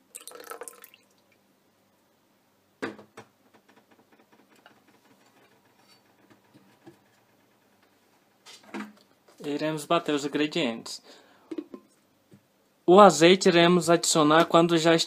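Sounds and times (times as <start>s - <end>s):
juice splashing into blender jar: 0.1s - 1.2s.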